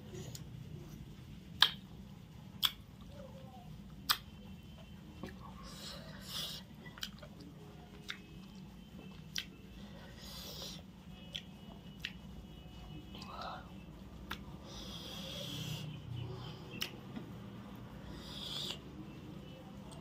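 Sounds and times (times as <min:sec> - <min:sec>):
wet mouth clicks: 0:01.5 - 0:01.9, 0:02.5 - 0:02.9, 0:04.0 - 0:04.3, 0:06.2 - 0:08.6, 0:09.2 - 0:09.6, 0:10.7 - 0:12.2, 0:14.2 - 0:15.9, 0:16.7 - 0:17.0, 0:18.2 - 0:18.9
chewing and lip-smacking: 0:01.6 - 0:01.9, 0:02.5 - 0:03.2, 0:04.0 - 0:04.4, 0:05.2 - 0:13.4, 0:14.2 - 0:15.9, 0:16.7 - 0:17.0.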